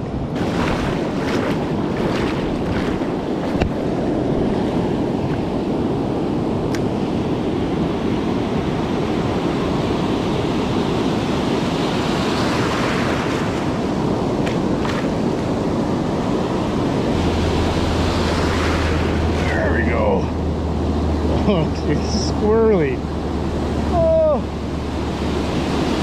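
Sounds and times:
wave breaking: 0:00.0 - 0:05.9, 0:11.6 - 0:26.0
ocean surf: 0:00.0 - 0:26.0
wind on microphone: 0:00.0 - 0:26.0.

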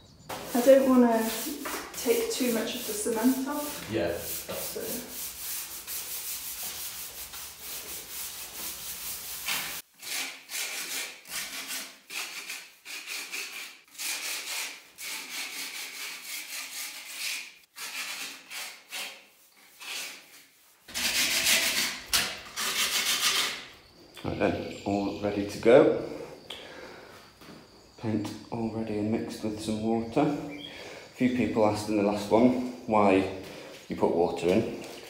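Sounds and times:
sandpaper scraping on render: 0:00.3 - 0:23.7.

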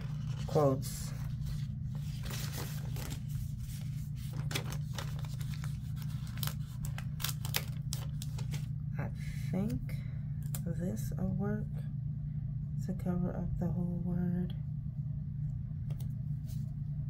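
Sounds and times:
paper sticker sheets crinkling: 0:00.0 - 0:08.8
steady low hum: 0:00.0 - 0:17.0
stickers peeling crackles: 0:02.1 - 0:08.7.

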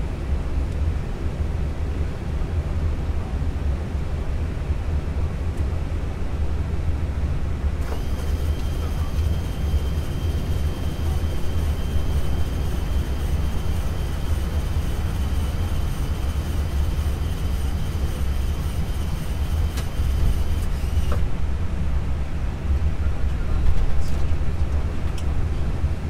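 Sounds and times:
aircraft engine rumble: 0:00.0 - 0:26.0
wiper motor whine: 0:07.8 - 0:21.4.

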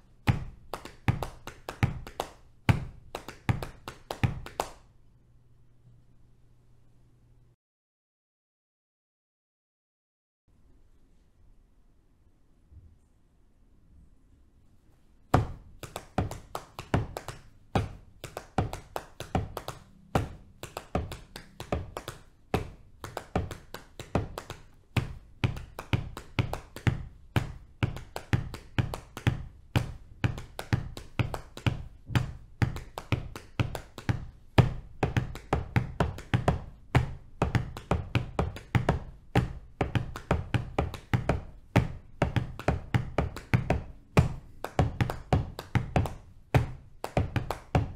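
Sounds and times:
hands patting on thighs: 0:00.2 - 0:04.8, 0:15.3 - 0:47.9.

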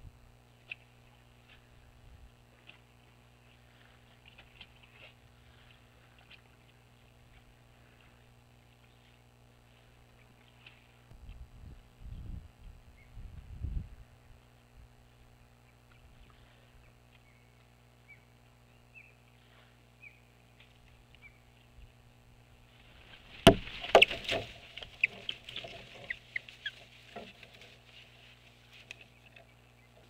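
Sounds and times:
sticks rustling and cracking: 0:23.0 - 0:30.0.

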